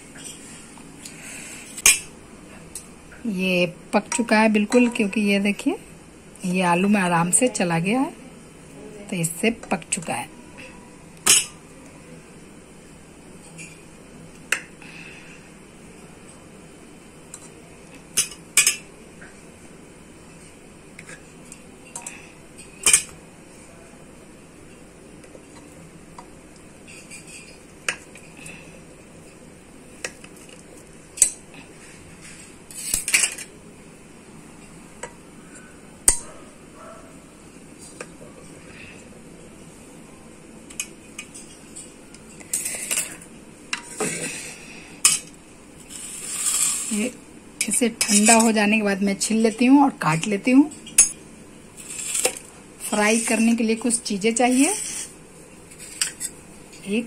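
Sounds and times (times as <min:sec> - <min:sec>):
knife scraping on metal: 0:45.9 - 0:47.0, 0:48.0 - 0:48.5, 0:54.5 - 0:55.1.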